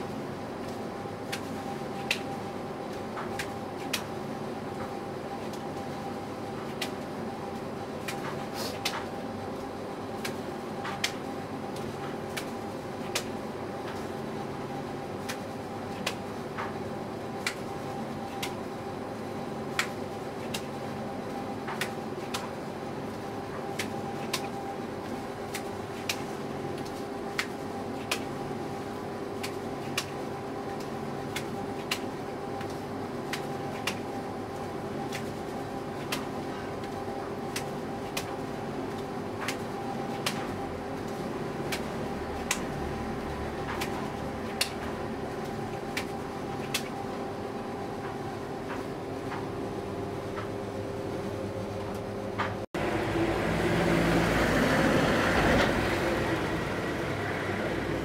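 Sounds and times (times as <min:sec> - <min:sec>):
steady mechanical hum: 0:00.0 - 0:58.0.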